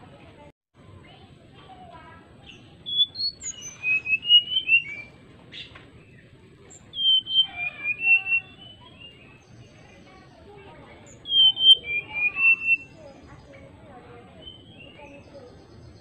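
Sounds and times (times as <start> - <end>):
bird whistling song: 2.4 - 10.1, 10.9 - 13.7, 14.4 - 16.0.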